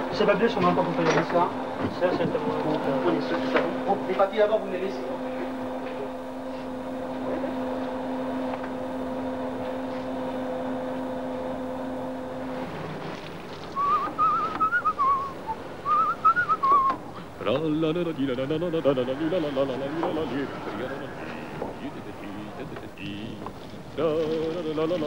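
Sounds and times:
steady low hum: 0.0 - 25.0
person whistling a tune: 13.8 - 17.0.

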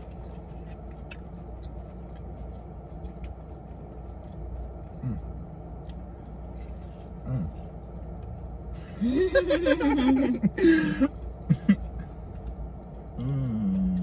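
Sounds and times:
low steady hum: 0.0 - 14.0
person laughing: 8.8 - 12.0.

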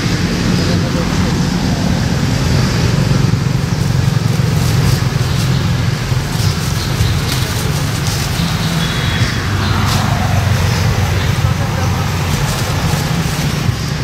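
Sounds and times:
low motor rumble: 0.0 - 14.0
faint ticks and rustles: 4.0 - 10.2.

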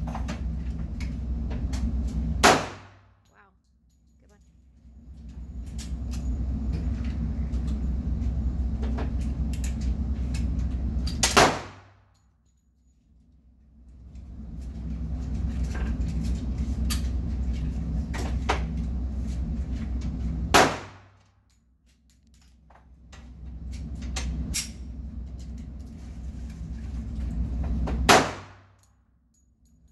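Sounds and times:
steady low hum: 0.0 - 29.9
pistol shots: 2.4 - 3.0, 11.2 - 12.0, 20.5 - 21.1, 28.1 - 28.7.

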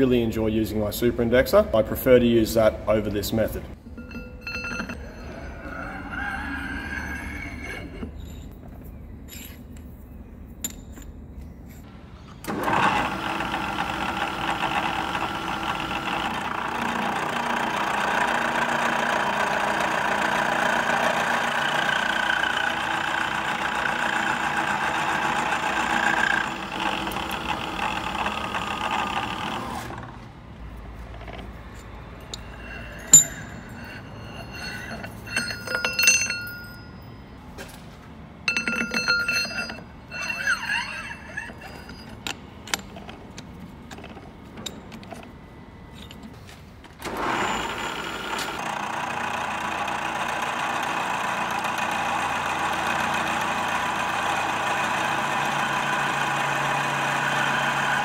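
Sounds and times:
milling machine cutting steel: 12.4 - 30.1, 31.2 - 36.8, 38.5 - 42.8, 47.0 - 58.0
light metallic clinks: 31.7 - 37.2, 38.5 - 43.0.

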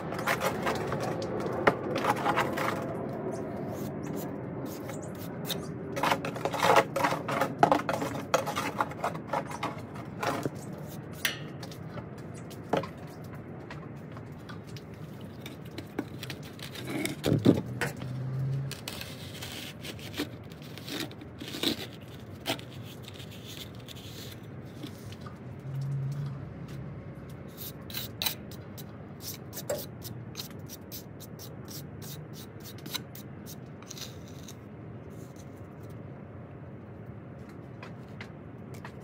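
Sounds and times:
hand tool scraping stucco: 0.0 - 11.8, 15.4 - 17.6, 18.5 - 25.2, 27.5 - 35.6.

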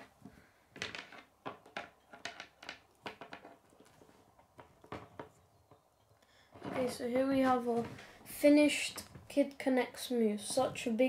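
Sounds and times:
plastic pieces clicking: 0.8 - 3.8.

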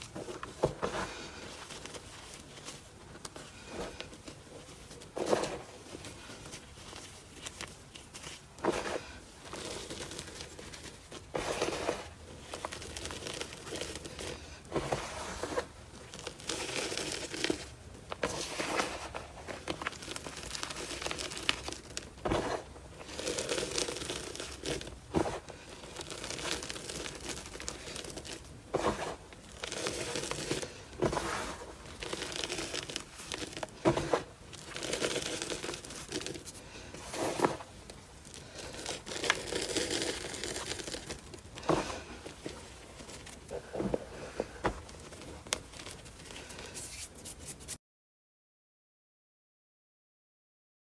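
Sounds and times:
hands crunching dry powder: 5.2 - 44.3.

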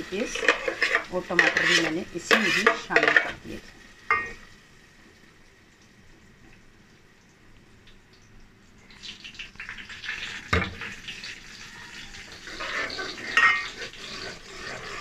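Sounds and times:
metal spoon scraping pot: 0.0 - 3.5, 12.3 - 15.0
paste sizzling in oil: 0.0 - 5.2, 8.9 - 15.0.

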